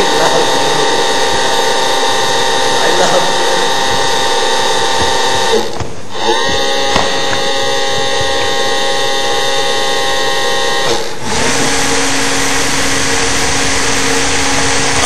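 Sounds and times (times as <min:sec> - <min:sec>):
small electric propeller motors whining: 0:00.0 - 0:15.0.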